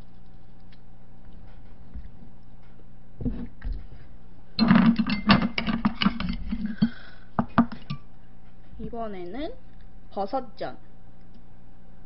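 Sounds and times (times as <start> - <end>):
crackling clicks of eating: 0.0 - 2.8.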